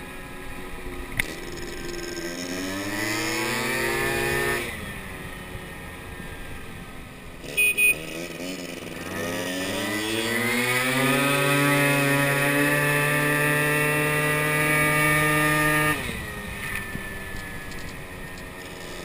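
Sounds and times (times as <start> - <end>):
moped engine revving: 0.0 - 19.0
horn beeps: 7.5 - 8.1.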